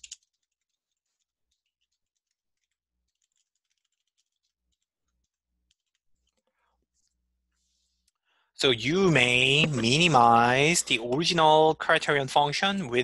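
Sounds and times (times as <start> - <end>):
faint keyboard clicks: 0.0 - 0.7.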